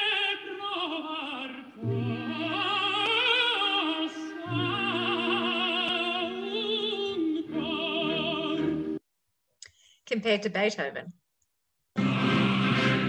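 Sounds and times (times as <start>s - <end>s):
male opera singer: 12.0s - 13.0s.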